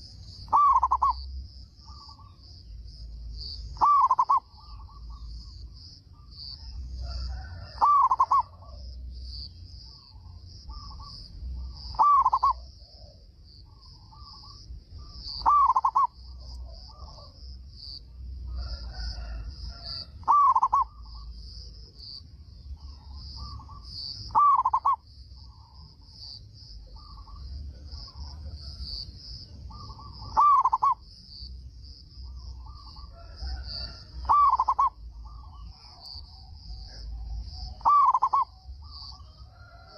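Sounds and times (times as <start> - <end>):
dove cooing: 0.5 - 1.3, 3.8 - 5.5, 6.6 - 8.9, 9.9 - 17.4, 18.5 - 21.2, 22.8 - 25.8, 29.7 - 31.0, 32.2 - 39.9.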